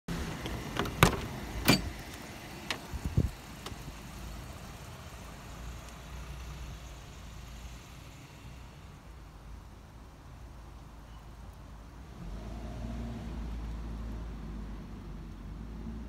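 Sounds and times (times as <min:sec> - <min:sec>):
car door latch clicks and knocks: 0:00.5 - 0:02.0.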